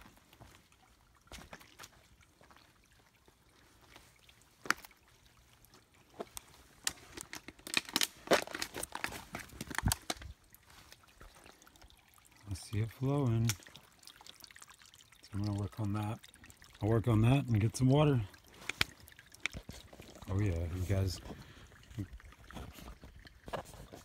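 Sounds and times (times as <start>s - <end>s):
water trickling over rocks: 0.0s - 24.0s
sharp splashes and knocks: 6.1s - 11.6s.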